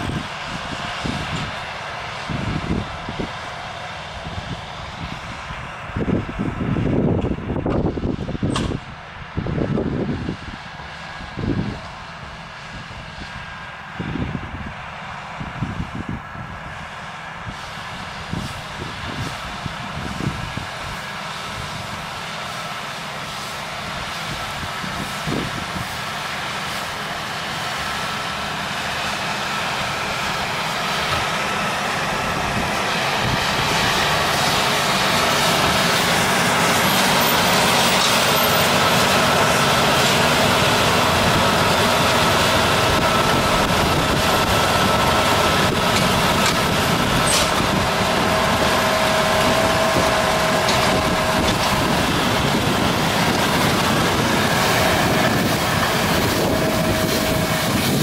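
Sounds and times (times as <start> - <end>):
tractor engine under load: 0.0 - 58.0
baler machinery working: 17.5 - 58.0.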